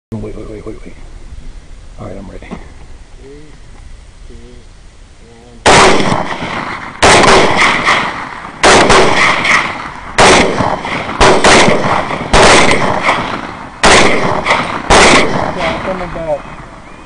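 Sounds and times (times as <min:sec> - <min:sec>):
rifle shots echoing: 0:05.6 - 0:16.9.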